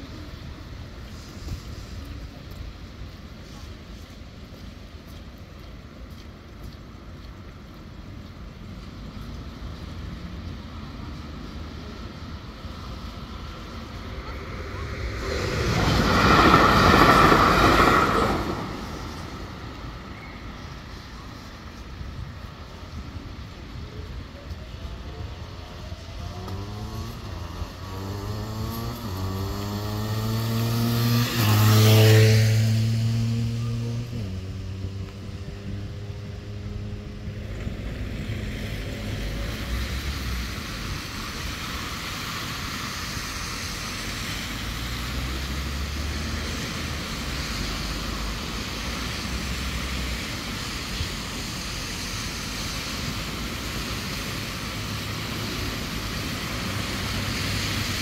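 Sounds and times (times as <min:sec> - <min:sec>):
cars hissing on wet road: 0:00.0 - 0:58.0
motorcycle passing by: 0:26.2 - 0:40.2.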